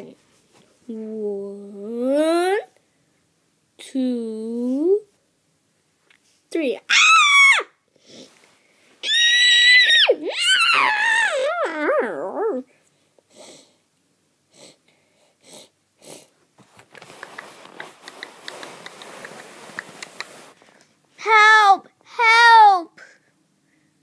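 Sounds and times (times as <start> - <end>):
child imitating horse whinny: 9.0 - 12.7
toy figures rustling on carpet: 16.6 - 20.8.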